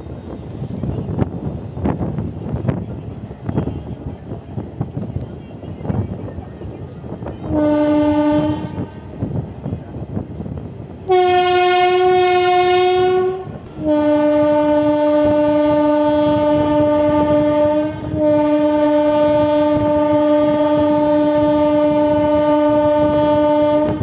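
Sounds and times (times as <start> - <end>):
train coaches rumbling on track: 0.0 - 24.0
locomotive horn blasts: 7.4 - 9.1, 11.0 - 24.0.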